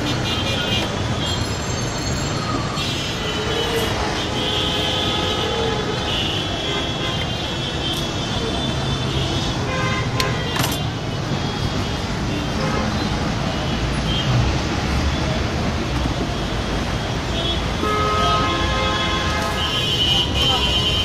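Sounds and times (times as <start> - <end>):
vehicle traffic din: 0.0 - 18.5
car horns tooting: 17.3 - 21.0.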